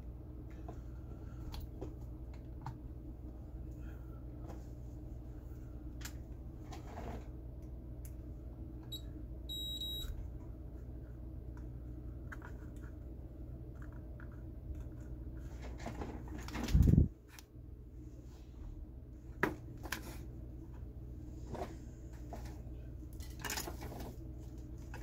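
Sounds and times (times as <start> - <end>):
low electrical hum: 0.0 - 25.0
high electronic beep: 9.5 - 10.1.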